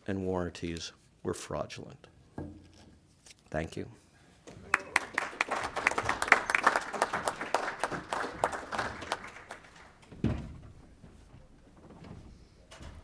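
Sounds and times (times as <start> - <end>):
audience applauding: 4.6 - 10.1.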